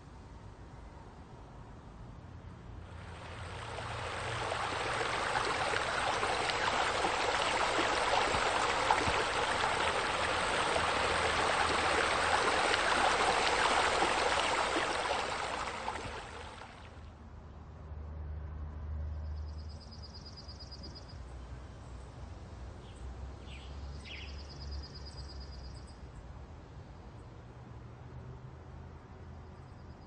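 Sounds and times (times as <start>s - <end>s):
waterfall splashing into pool: 3.0s - 17.0s.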